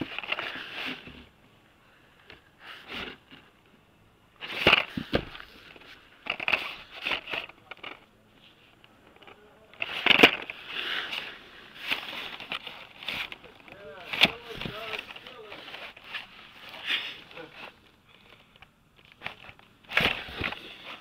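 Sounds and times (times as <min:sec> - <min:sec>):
plastic packages clacking: 0:09.1 - 0:16.3.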